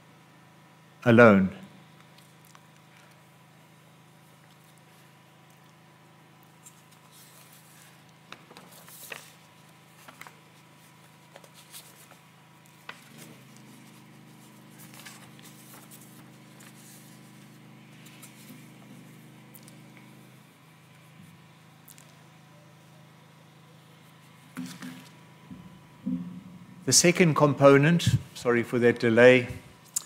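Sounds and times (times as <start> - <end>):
low electrical hum: 0.0 - 30.0
paper notes rustling and clicking: 6.6 - 20.2.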